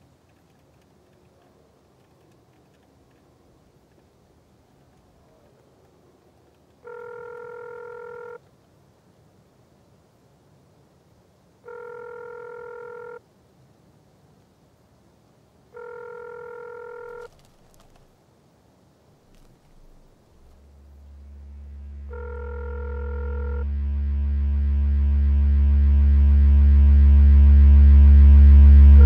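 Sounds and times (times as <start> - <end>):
telephone ringback beeps: 6.8 - 8.4, 11.7 - 13.2, 15.8 - 17.4, 22.1 - 23.6.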